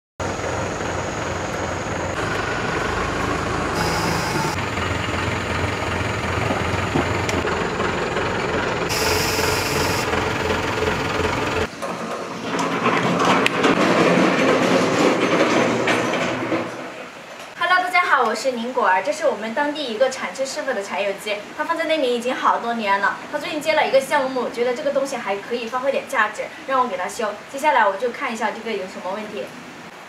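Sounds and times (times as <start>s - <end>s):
motor running: 0.2s - 11.7s
bursts of hiss: 3.8s - 4.6s.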